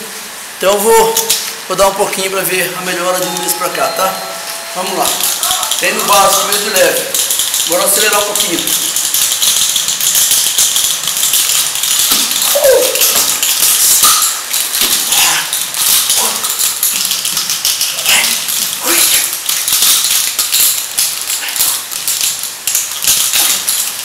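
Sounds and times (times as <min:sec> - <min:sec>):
chain rattling and clinking: 0:04.2 - 0:24.0
person yelping: 0:12.5 - 0:13.2.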